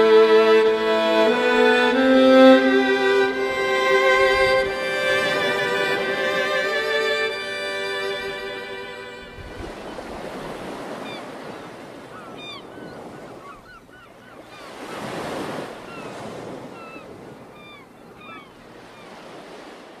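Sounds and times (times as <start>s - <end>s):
small waves washing ashore: 0.0s - 20.0s
songbirds chirping: 8.0s - 14.9s, 15.7s - 19.4s.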